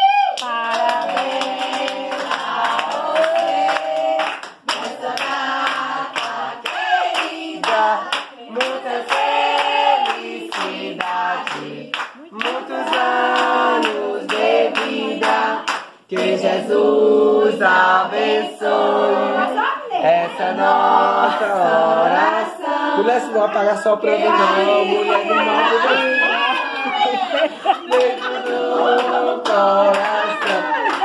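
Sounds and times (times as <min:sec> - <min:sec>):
hand-clapping: 0:00.3 - 0:16.4, 0:26.4 - 0:31.0
group singing in chorus: 0:00.4 - 0:31.0.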